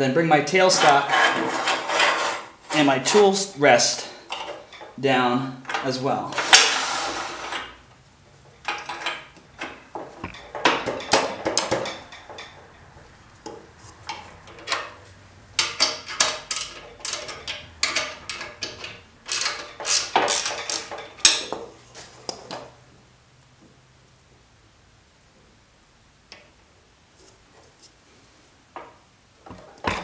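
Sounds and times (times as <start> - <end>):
metal clanks and knocks of lathe: 8.6 - 12.8.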